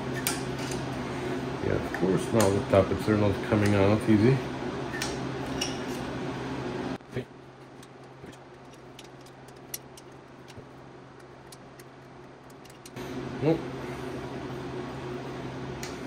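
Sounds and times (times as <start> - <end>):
steady hum: 4.4 - 16.0
metal rod clicking on tappets: 7.8 - 10.6, 11.2 - 13.0.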